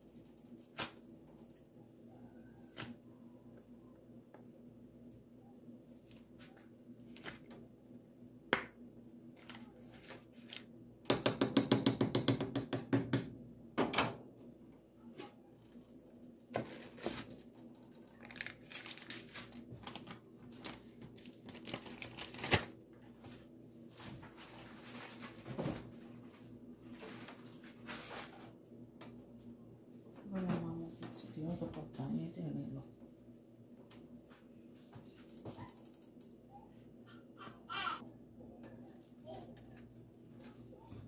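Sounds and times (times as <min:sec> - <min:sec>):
faint steady hum: 0:00.0 - 0:12.1
aluminium foil crinkling: 0:09.4 - 0:10.7, 0:15.6 - 0:22.8.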